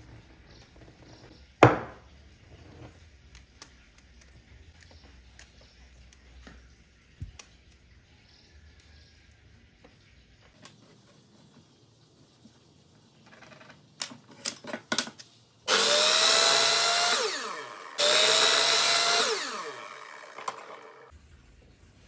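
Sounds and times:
miter saw cutting wood: 15.7 - 21.1
saw blade whine winding down: 15.7 - 21.1.

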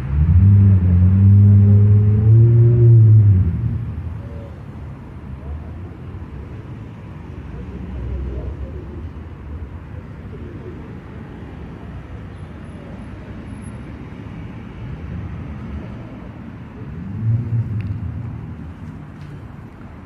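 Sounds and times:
vehicle engine passing: 0.0 - 4.2, 16.8 - 19.5
road traffic rumble: 0.0 - 20.0.

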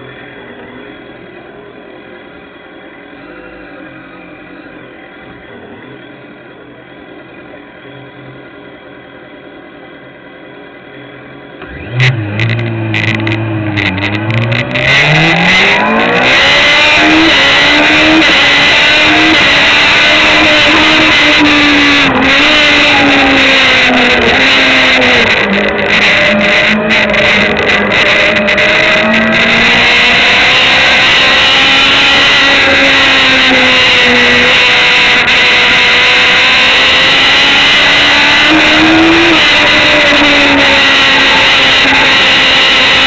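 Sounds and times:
motorcycle engine revving: 11.6 - 43.0.

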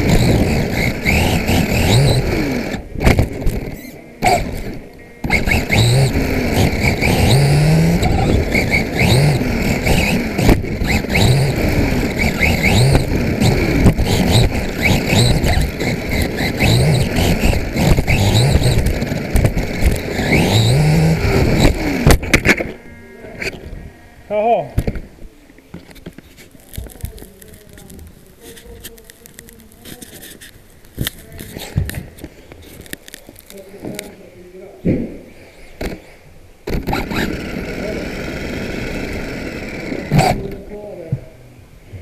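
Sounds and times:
rc car electric motor whining: 0.0 - 22.8, 23.4 - 23.8, 36.7 - 40.7
tyre and gear noise: 0.0 - 23.9, 24.7 - 34.3, 35.6 - 40.9.

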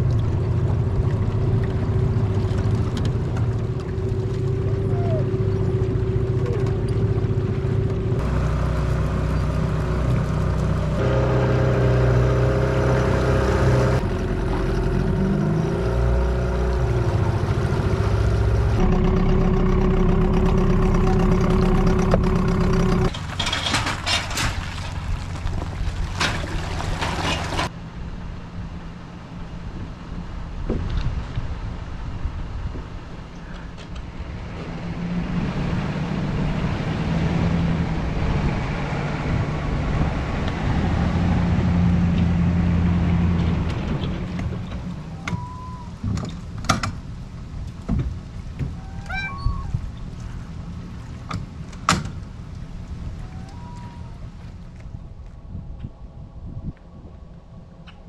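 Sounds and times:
outboard motor running: 0.0 - 23.1
wind noise on microphone: 29.8 - 42.4, 47.8 - 50.6, 52.8 - 58.0.

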